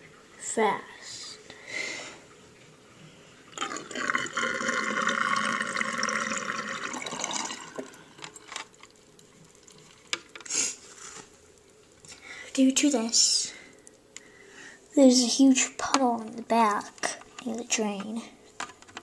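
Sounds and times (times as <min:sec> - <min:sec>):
water running: 0:03.4 - 0:18.0.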